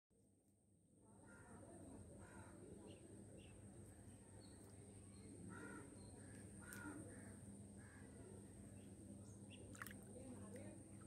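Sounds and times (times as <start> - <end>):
crow cawing: 2.2 - 2.6, 5.5 - 8.3.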